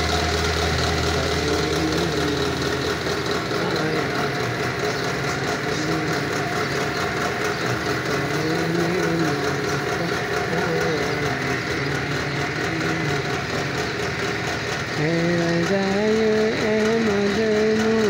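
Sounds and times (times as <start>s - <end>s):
steady mechanical hum: 0.0s - 18.0s
person singing long wavering notes: 8.2s - 13.8s, 14.9s - 18.0s.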